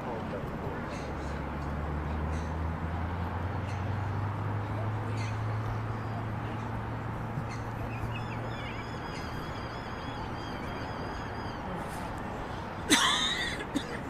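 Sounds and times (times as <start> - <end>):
birds chirping: 0.7 - 13.6
harsh bird call: 7.4 - 11.8.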